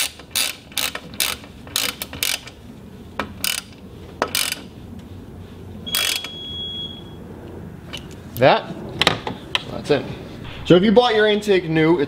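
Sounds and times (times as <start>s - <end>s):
socket ratchet clicking: 0.0s - 2.6s, 3.2s - 4.7s.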